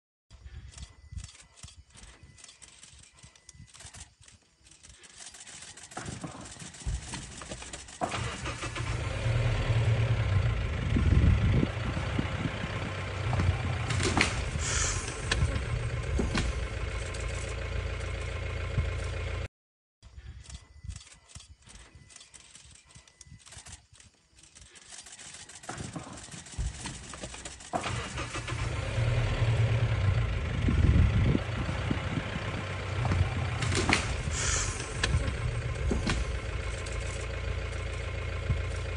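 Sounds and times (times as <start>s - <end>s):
engine running: 4.7s - 19.5s, 24.5s - 38.9s.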